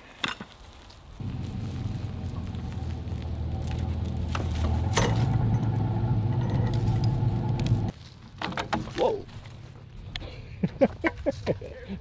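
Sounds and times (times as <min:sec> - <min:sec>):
truck engine revving: 0:01.2 - 0:07.9.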